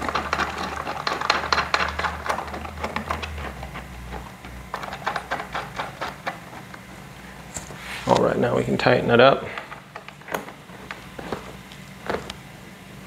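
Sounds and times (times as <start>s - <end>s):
clicks and rattles of bolts: 0.0s - 6.8s, 9.5s - 11.0s.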